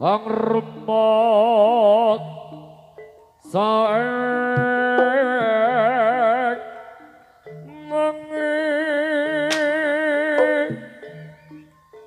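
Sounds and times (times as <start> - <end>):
person singing long wavering notes: 0.0 - 12.0
soft low gamelan notes: 1.8 - 12.0.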